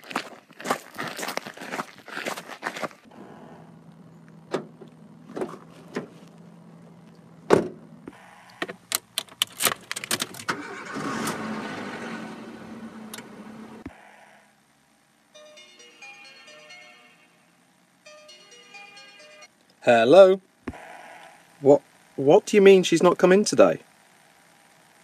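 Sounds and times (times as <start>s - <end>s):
footsteps on gravel: 0.0s - 3.1s, 4.2s - 7.2s
car engine starting: 3.1s - 14.2s.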